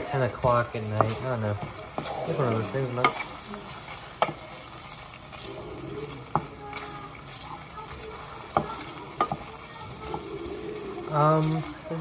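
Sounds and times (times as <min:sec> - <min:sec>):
hiss of stove cooking: 0:00.0 - 0:12.0
wooden spoon stirring pasta: 0:00.0 - 0:12.0
spoon knocking against pot: 0:08.5 - 0:09.5.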